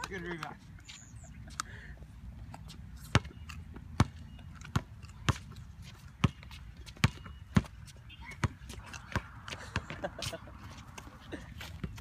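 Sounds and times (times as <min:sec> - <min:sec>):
basketball bouncing on hard court: 0:03.1 - 0:03.4, 0:04.0 - 0:05.6, 0:06.2 - 0:10.0.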